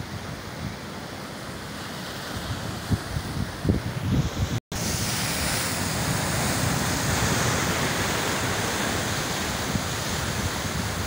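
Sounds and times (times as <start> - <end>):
wind buffeting microphone: 2.2 - 11.0
surf breaking on rocks: 4.8 - 11.0.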